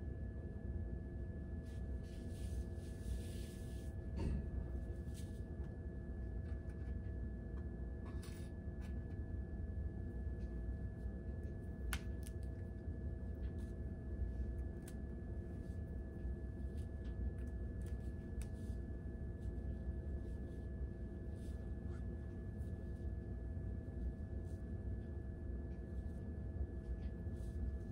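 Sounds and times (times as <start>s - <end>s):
low room hum: 0.0s - 27.9s.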